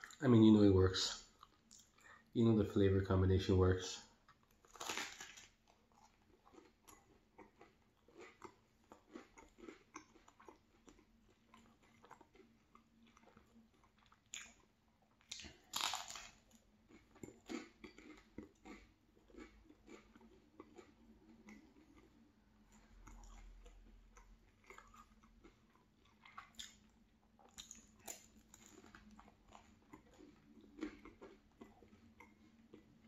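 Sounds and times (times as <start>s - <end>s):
chewing bagel: 4.2s - 33.0s
crunching bites: 4.6s - 22.0s.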